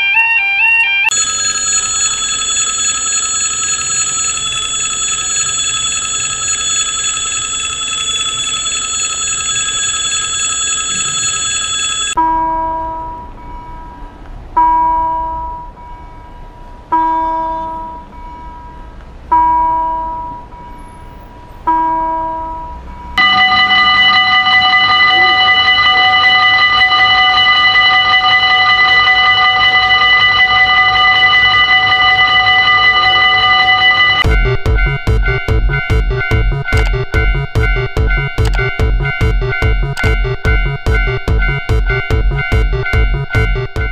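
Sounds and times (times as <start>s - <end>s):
level crossing bell ringing: 0.0s - 14.0s, 23.2s - 43.9s
slow single chimes: 23.1s - 43.9s.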